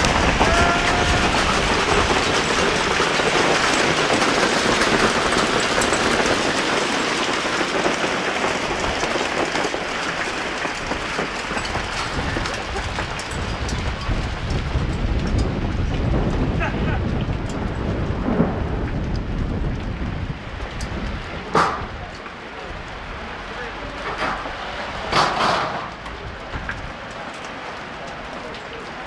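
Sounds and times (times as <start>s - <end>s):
heavy rain on a street: 0.0s - 29.0s.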